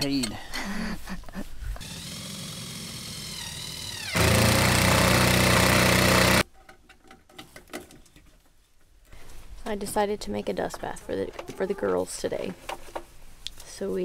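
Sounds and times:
impact driver driving a screw: 0:01.8 - 0:06.4.

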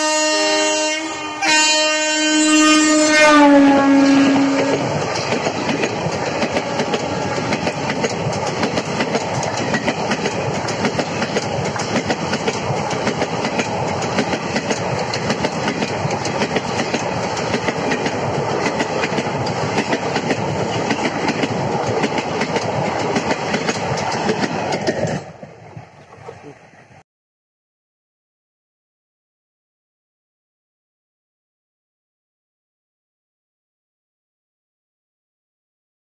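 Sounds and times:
locomotive horn: 0:00.0 - 0:04.9
train coaches rushing past: 0:03.1 - 0:27.0.

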